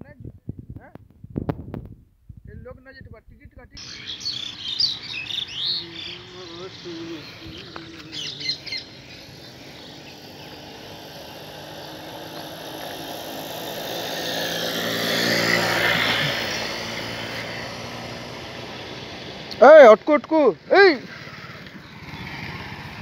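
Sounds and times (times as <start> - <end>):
bird chirps: 3.8 - 12.8, 21.6 - 22.6
vehicle passing by: 3.8 - 23.0.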